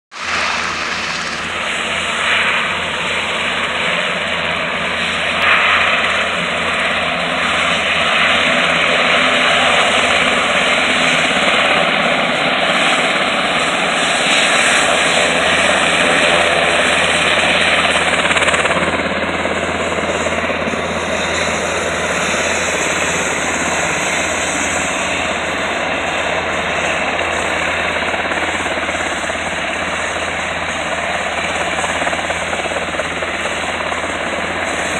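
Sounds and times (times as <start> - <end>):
helicopter engines and rotors: 0.1 - 34.9.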